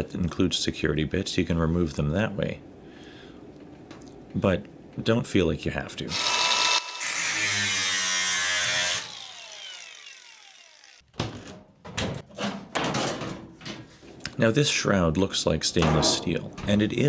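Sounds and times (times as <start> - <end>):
small electric motor whirring: 6.1 - 11.0
sheet metal cover clattering: 11.2 - 13.9.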